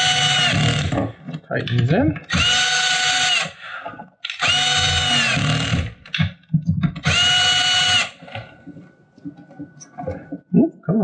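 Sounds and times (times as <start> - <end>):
cordless drill motor whining: 0.0 - 1.0, 2.3 - 3.6, 4.2 - 6.0, 7.0 - 8.4.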